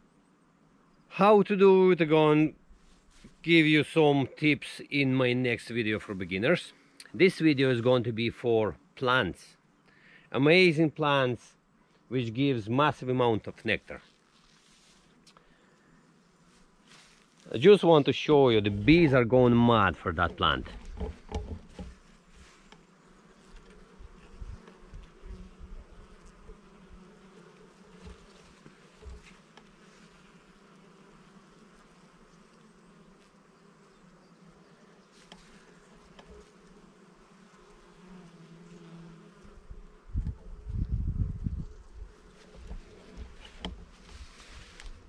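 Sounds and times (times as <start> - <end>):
bees buzzing: 15.6 - 45.0.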